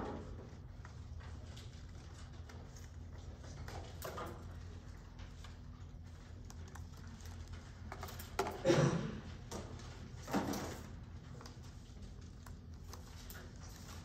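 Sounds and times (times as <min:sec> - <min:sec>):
low room hum: 0:00.0 - 0:14.0
paper rustling: 0:09.7 - 0:14.0.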